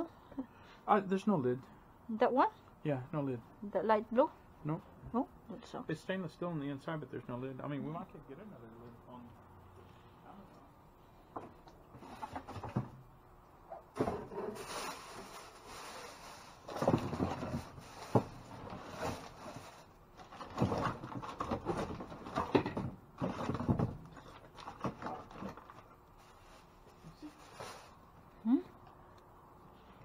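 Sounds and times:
rustling and scraping: 11.1 - 13.0, 13.8 - 28.2.

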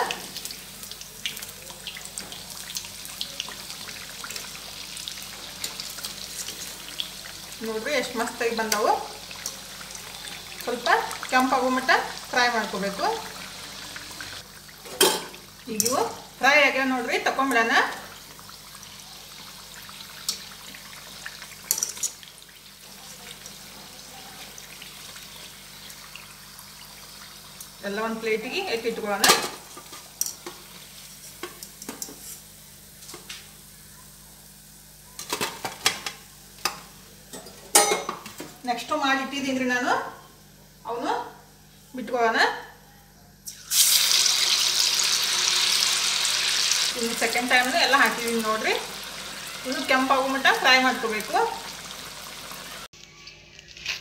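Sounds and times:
food deep-frying in oil: 0.0 - 38.0, 43.4 - 54.0.

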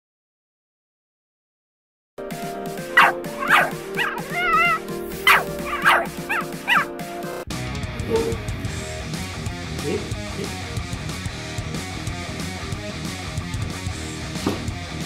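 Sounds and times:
background music: 2.2 - 15.0
puppy yipping and whining: 3.0 - 6.9.

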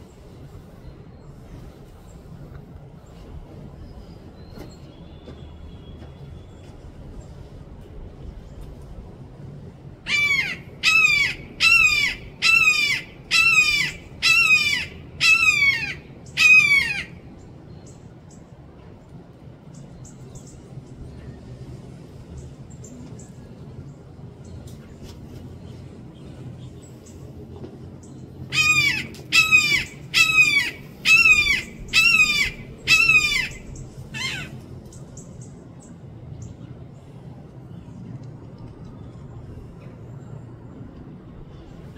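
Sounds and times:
hawk calls: 10.1 - 17.1, 28.5 - 34.6
hawk screaming: 28.5 - 34.6.

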